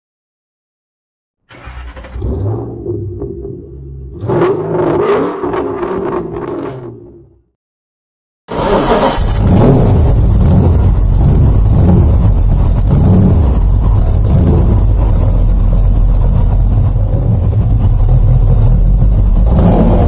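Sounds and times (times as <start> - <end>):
car engine idling: 1.5 - 4.7, 8.8 - 20.0.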